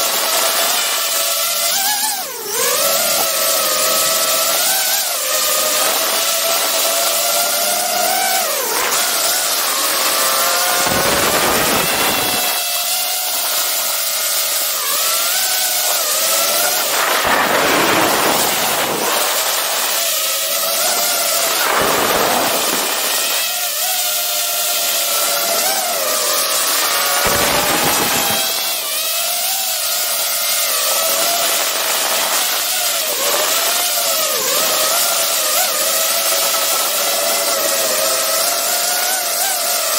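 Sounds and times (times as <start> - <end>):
drone motors whining: 0.0 - 39.9
wind rushing over microphone: 10.7 - 12.6, 16.6 - 20.0.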